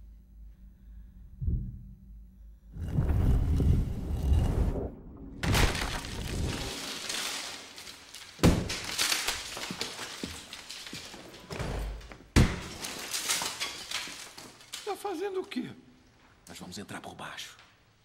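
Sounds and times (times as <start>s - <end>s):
debris crumbling and falling: 3.3s - 15.7s
sledgehammer smashing plaster wall: 5.4s - 14.9s.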